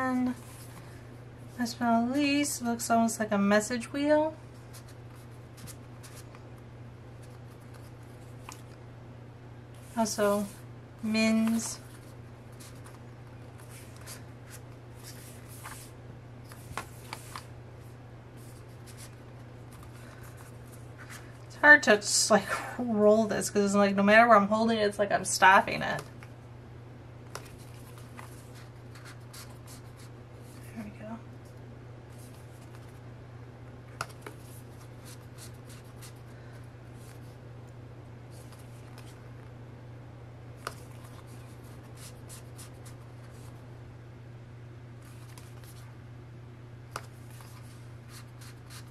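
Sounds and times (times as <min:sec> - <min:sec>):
faint low hum: 0:00.0 - 0:48.9
paper rustling: 0:11.3 - 0:17.5
paper rubbing and sliding: 0:13.6 - 0:15.9.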